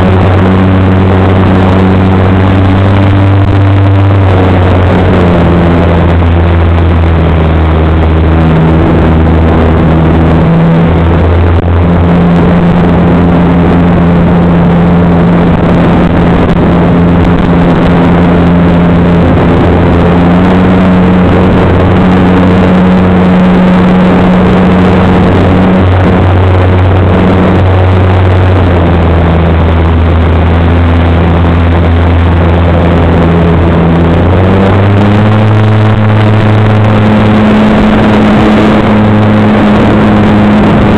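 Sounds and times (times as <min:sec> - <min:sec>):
wind rush on microphone: 0:00.0 - 0:40.9.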